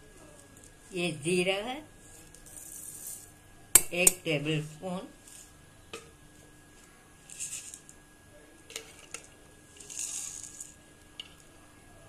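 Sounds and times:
seeds rattling in grinder jar: 2.2 - 3.3, 7.3 - 8.0, 8.7 - 10.8.

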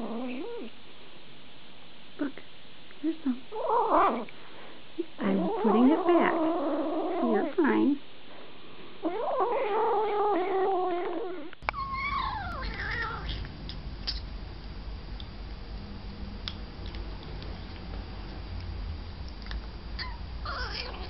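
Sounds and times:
kitten crying: 9.1 - 13.4, 20.0 - 21.0
kitten eating from a bowl: 12.9 - 19.8.

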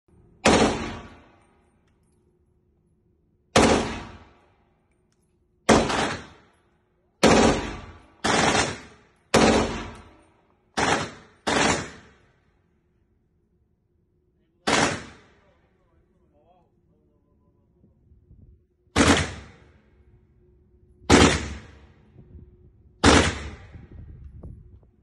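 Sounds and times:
rifle shots echoing indoors: 0.3 - 2.5, 3.4 - 13.3, 14.6 - 15.6, 18.9 - 20.1, 21.1 - 22.1, 23.0 - 23.7.

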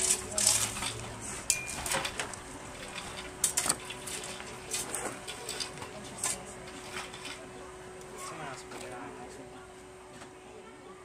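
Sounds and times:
tools scraping gravelly soil: 0.0 - 1.2.

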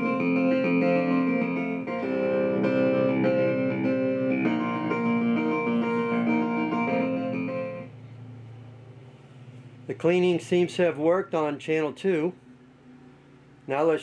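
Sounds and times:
instrumental music over loudspeakers: 0.0 - 7.9.

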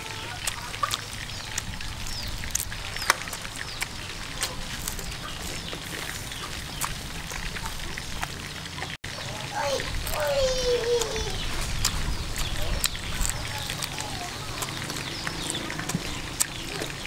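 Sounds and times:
crunching and chewing: 0.0 - 17.0.

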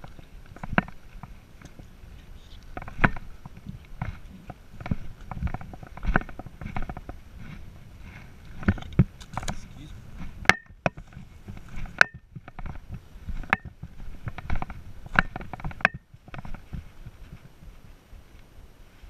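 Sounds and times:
sharp clicks and knocks: 0.0 - 1.9, 2.6 - 7.2, 10.4 - 16.8
low rustle of brush: 0.0 - 10.4, 11.0 - 19.0
footsteps on rocks: 0.0 - 18.4.

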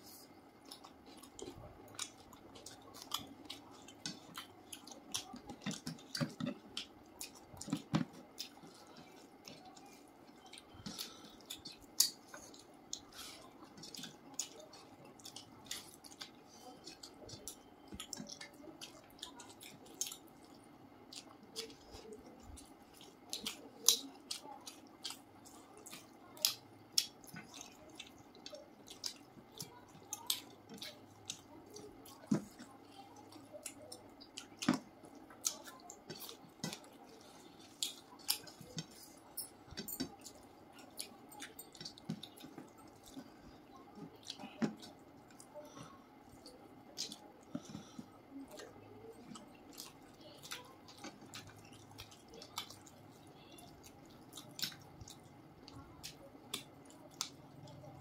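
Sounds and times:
faint steady hum: 0.0 - 58.0
wet chewing and mouth smacks: 0.6 - 58.0.

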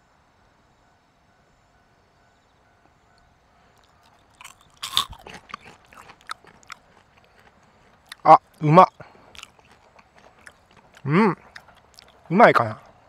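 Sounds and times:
crisp chewing crunches: 3.8 - 13.0.

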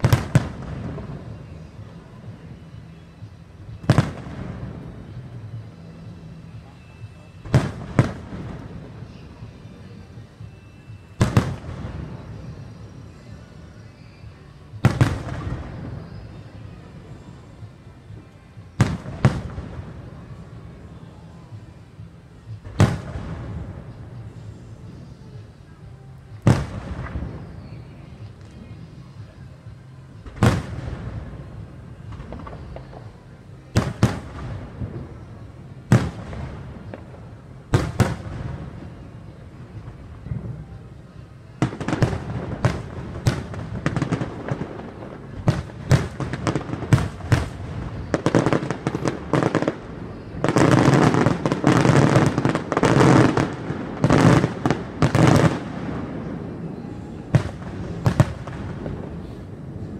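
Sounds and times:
firework shells booming: 0.0 - 1.3
rolling echo: 0.0 - 13.4, 14.5 - 59.9.

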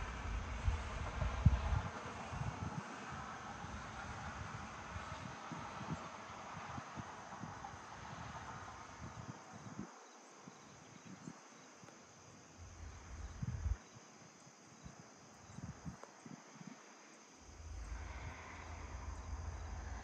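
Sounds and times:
wind buffeting microphone: 0.0 - 11.4, 12.6 - 14.0, 17.5 - 20.0
insects trilling: 3.6 - 20.0.

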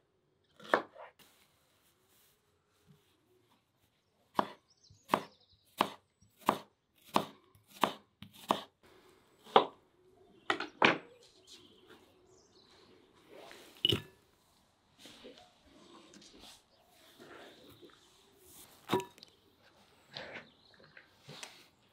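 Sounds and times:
knife chopping on wooden board: 4.4 - 8.7.

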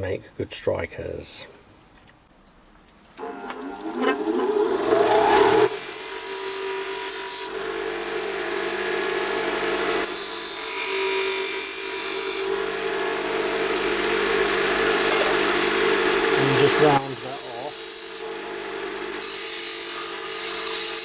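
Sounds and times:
bench grinder motor humming: 3.2 - 21.0
metal blade hissing on grinding wheel: 3.8 - 8.6, 10.0 - 13.4, 16.2 - 18.3, 19.2 - 21.0.

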